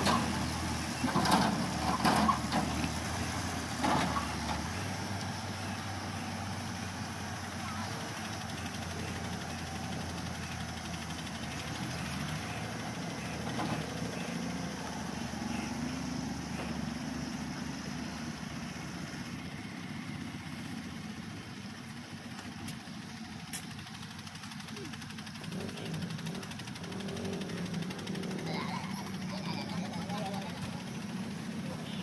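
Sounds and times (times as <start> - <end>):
excavator diesel engine running: 0.0 - 32.0.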